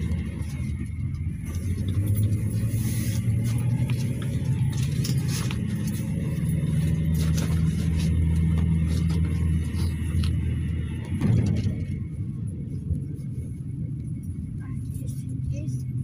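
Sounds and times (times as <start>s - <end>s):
engine and road drone: 0.0s - 16.0s.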